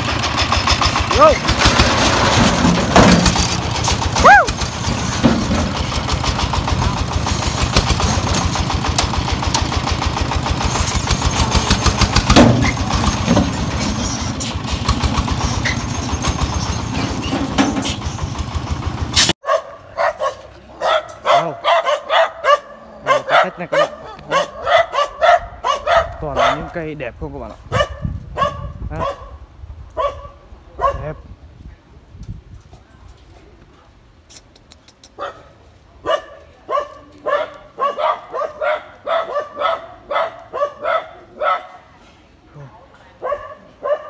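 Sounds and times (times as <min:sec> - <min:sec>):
diesel engine running: 0:00.0 - 0:19.4
dog barking: 0:19.4 - 0:26.7, 0:27.7 - 0:29.4, 0:30.0 - 0:31.2, 0:35.2 - 0:41.9, 0:43.2 - 0:44.0.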